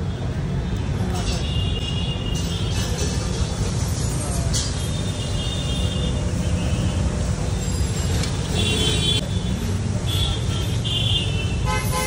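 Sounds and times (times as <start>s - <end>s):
traffic rumble: 0.0s - 12.0s
car horns: 8.2s - 12.0s.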